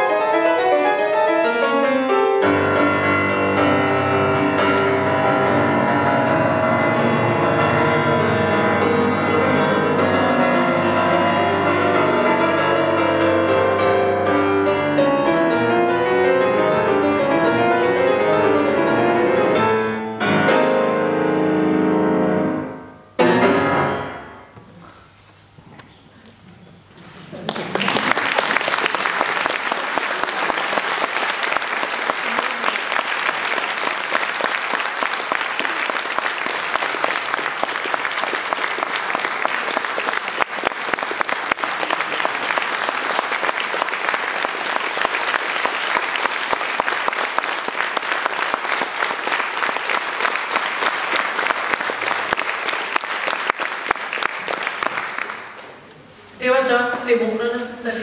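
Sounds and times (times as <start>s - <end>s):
audience applauding: 27.3s - 55.8s.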